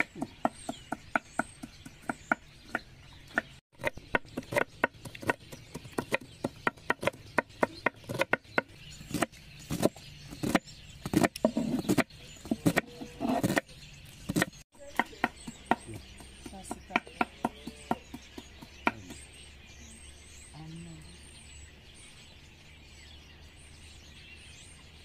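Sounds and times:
knife chopping on wooden board: 0:00.0 - 0:13.7.

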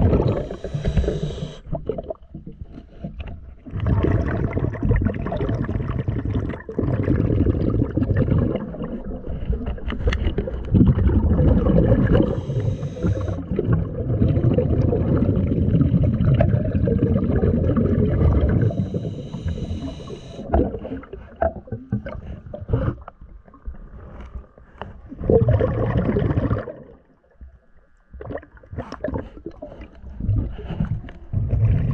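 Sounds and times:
exhaled bubbles rumbling: 0:00.0 - 0:27.4, 0:28.1 - 0:31.9
regulator inhalation hiss: 0:00.2 - 0:01.6, 0:12.1 - 0:13.4, 0:18.6 - 0:20.4.

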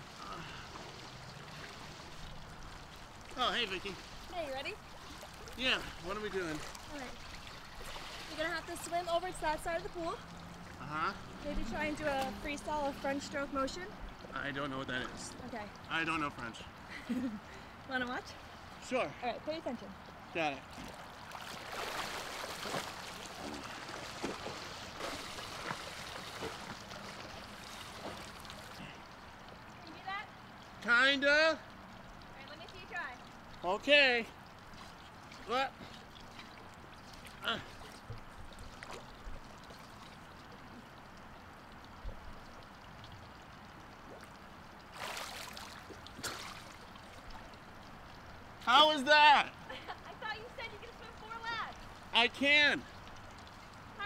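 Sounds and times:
swimmer splashing in pool: 0:00.0 - 0:10.7, 0:20.7 - 0:29.0, 0:44.8 - 0:47.4
pool water lapping: 0:00.0 - 0:54.0
splashing water: 0:00.0 - 0:54.0.

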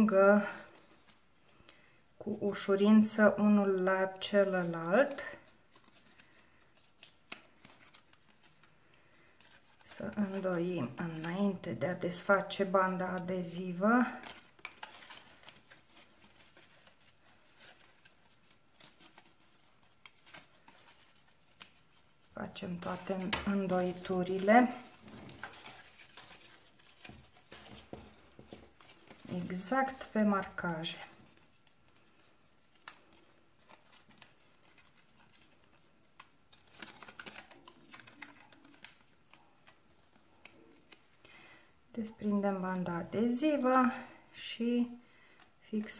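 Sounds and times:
cardstock rustling and tapping: 0:09.4 - 0:41.1.

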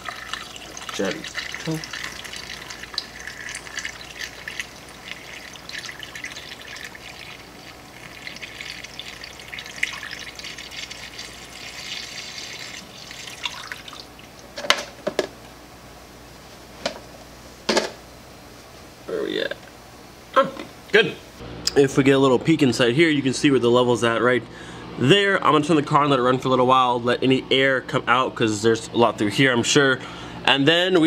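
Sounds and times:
liquid pouring through funnel: 0:00.0 - 0:14.4.

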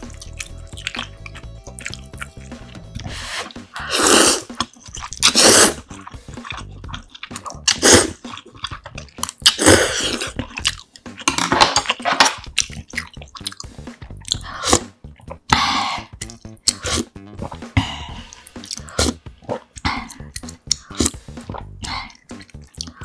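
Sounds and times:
chewing: 0:00.0 - 0:23.0
wet noodle slurps: 0:01.7 - 0:10.4, 0:13.4 - 0:17.6, 0:18.5 - 0:22.9.

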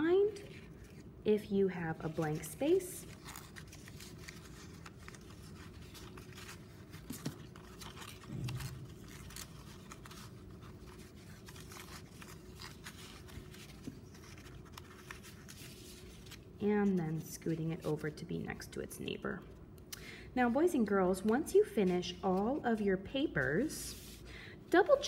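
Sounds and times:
paper rustling and crinkling: 0:01.8 - 0:18.1, 0:23.6 - 0:25.0.

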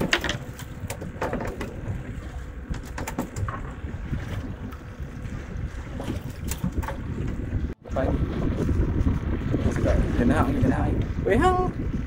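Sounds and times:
sharp clicks and knocks: 0:00.0 - 0:01.8, 0:02.7 - 0:03.7
wind rumble on microphone: 0:00.0 - 0:12.0.

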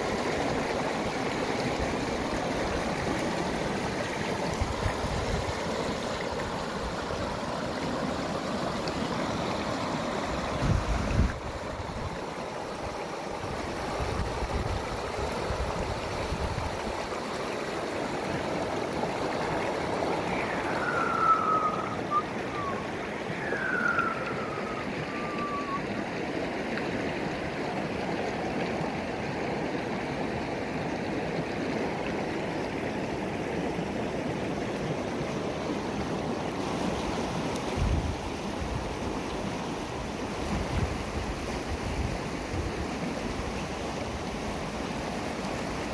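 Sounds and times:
stream rushing over rocks: 0:00.0 - 0:45.9
short falling whistled notes: 0:20.3 - 0:25.8.

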